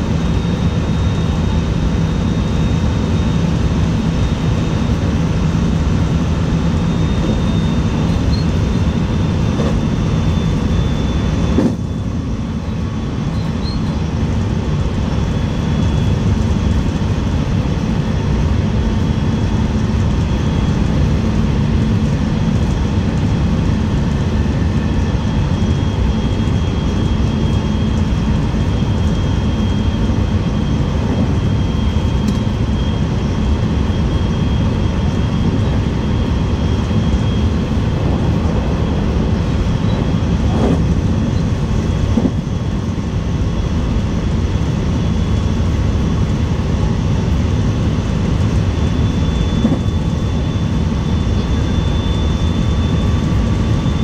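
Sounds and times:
faint high whine: 0:00.0 - 0:22.0, 0:23.0 - 0:54.0
train wheels rumbling on rail: 0:11.5 - 0:11.8, 0:37.4 - 0:42.9.

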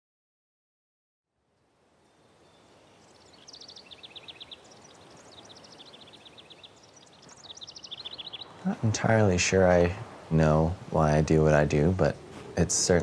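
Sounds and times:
faint outdoor hiss: 0:01.3 - 0:13.0
songbird singing rapid trills: 0:02.0 - 0:10.8.

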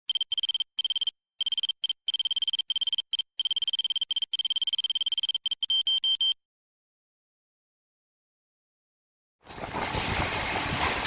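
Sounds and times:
electronic typing ticks with beeps: 0:00.0 - 0:06.4.

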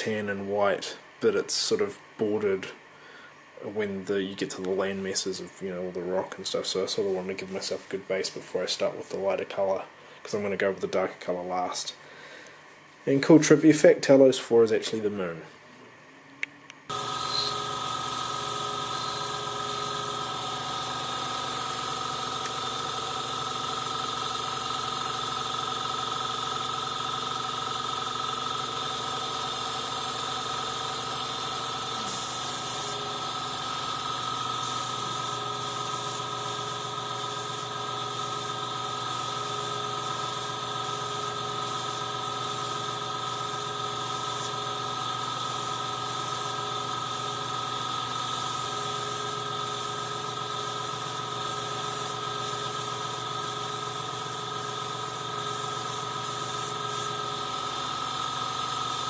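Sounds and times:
airbrush air hiss: 0:16.9 - 0:59.0
small motor humming: 0:16.9 - 0:59.0.

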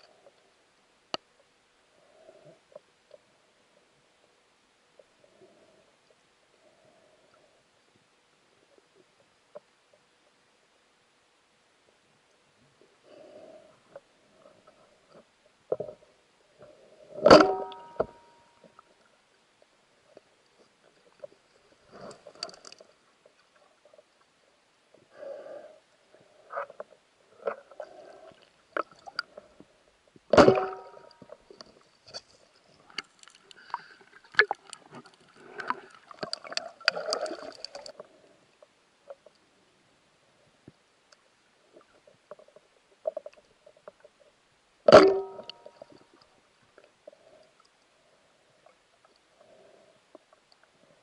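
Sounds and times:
sharp underwater knocks: 0:17.2 - 0:18.2, 0:30.3 - 0:31.0, 0:44.9 - 0:45.7
underwater gurgles and bubbling: 0:32.7 - 0:39.4.

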